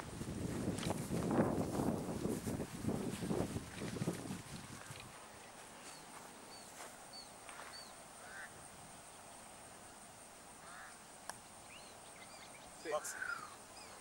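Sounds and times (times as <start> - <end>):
faint bird chirps: 5.8 - 9.3, 11.6 - 14.0.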